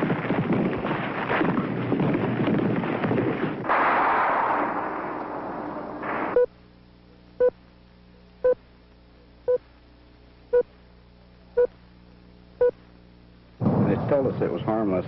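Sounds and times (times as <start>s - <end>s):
heart monitor beeping: 6.3s - 6.5s, 7.4s - 7.6s, 8.4s - 8.6s, 10.5s - 10.7s, 11.6s - 11.8s.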